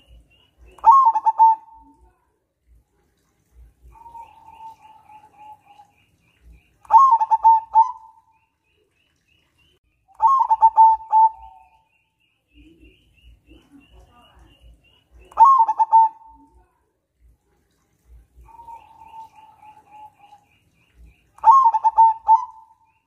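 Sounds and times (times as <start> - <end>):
dove cooing: 0.7 - 2.0, 3.8 - 5.9, 6.9 - 8.3, 10.2 - 11.8, 15.3 - 16.6, 18.4 - 20.4, 21.4 - 22.9.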